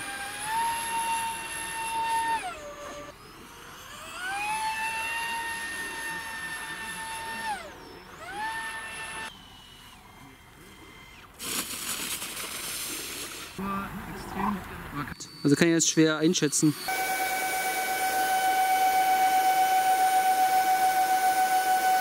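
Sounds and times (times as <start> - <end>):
electric ducted fan whining: 16.2 - 22.0.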